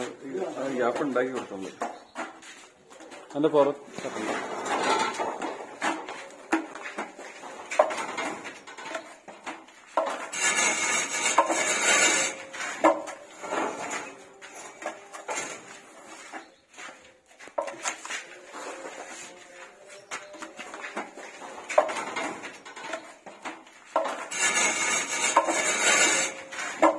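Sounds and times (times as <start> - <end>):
putty blades scraping on wall: 4.0 - 16.3, 20.9 - 26.9.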